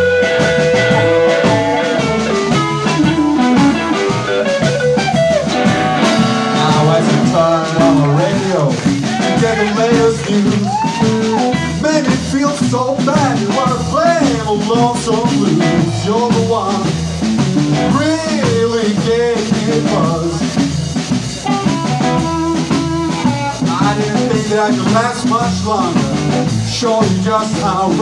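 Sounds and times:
electric guitar lead melody bending: 0:00.0 - 0:10.3, 0:13.4 - 0:18.6, 0:21.4 - 0:23.8
drums: 0:00.0 - 0:28.0
live blues band playing: 0:00.0 - 0:28.0.

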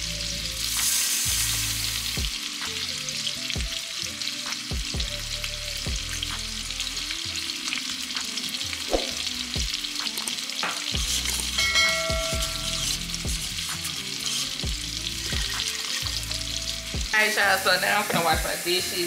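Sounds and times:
meat sizzling in a pan: 0:00.0 - 0:19.0
low thumping beat: 0:04.7 - 0:05.2, 0:05.8 - 0:06.5, 0:08.9 - 0:09.9, 0:10.6 - 0:13.8, 0:14.6 - 0:17.2.

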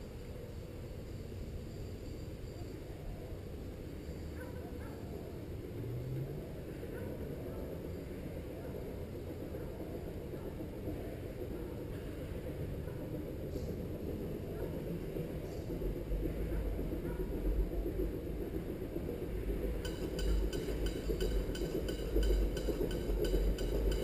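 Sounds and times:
steam train rumble: 0:00.0 - 0:24.0
rails ringing in ticking rhythm: 0:05.1 - 0:24.0.

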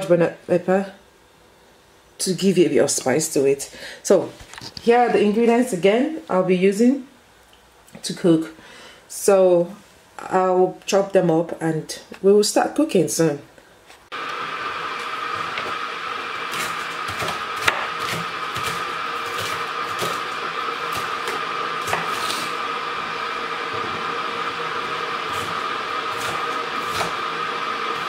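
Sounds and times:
steady hum with thin whine: 0:00.0 - 0:28.0
knife chopping on wooden board: 0:17.2 - 0:20.2, 0:20.9 - 0:22.2, 0:26.2 - 0:27.2.

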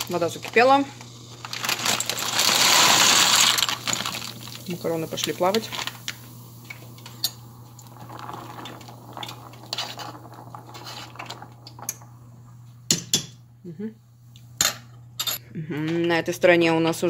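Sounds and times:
water boiling: 0:00.0 - 0:13.5
metal spoon scraping a pot: 0:09.7 - 0:10.1.

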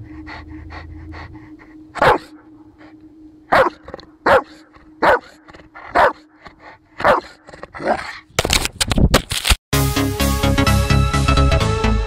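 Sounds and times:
dog barking deeply: 0:02.0 - 0:02.4, 0:03.5 - 0:06.3, 0:07.0 - 0:08.2.

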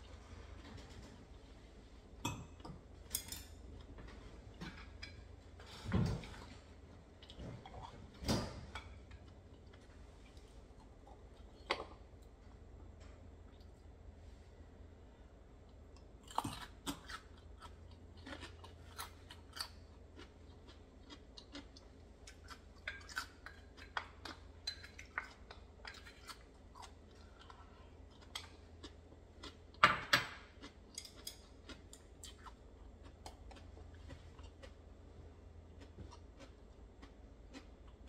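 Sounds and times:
mouth clicks and chewing: 0:15.9 - 0:29.6, 0:30.6 - 0:34.8.

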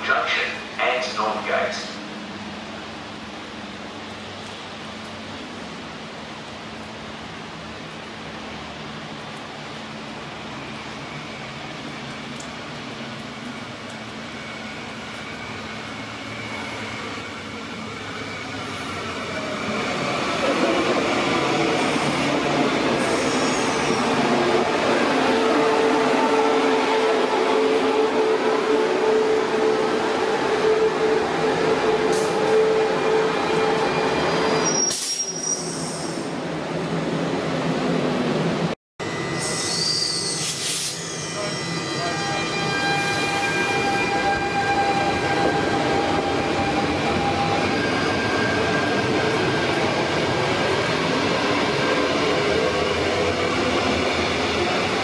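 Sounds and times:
high wheel squeals: 0:33.8 - 0:36.3, 0:39.1 - 0:49.0.

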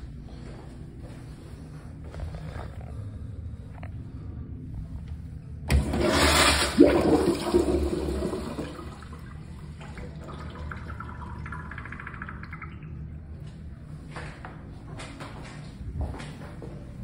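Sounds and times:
urinal flushing water rush: 0:05.7 - 0:13.5.

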